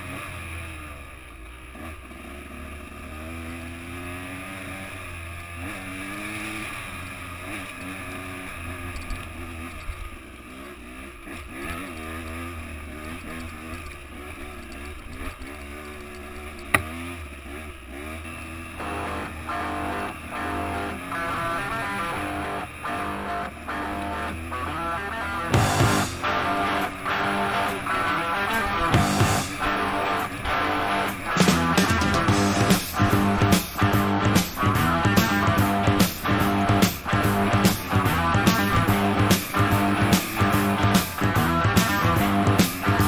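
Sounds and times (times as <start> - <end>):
dirt bike engine revving: 0.0 - 43.0
guitar music: 18.8 - 43.0.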